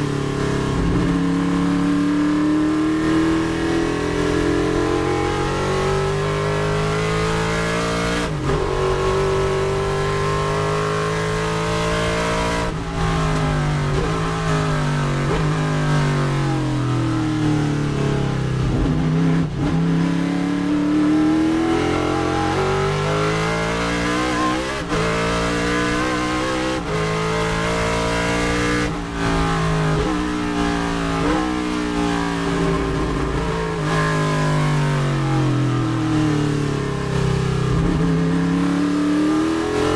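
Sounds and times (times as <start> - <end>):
race car engine accelerating: 0.0 - 39.9.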